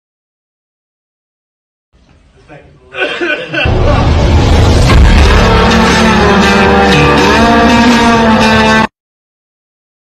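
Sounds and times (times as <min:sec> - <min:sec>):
loud guitar music: 0:03.7 - 0:08.9.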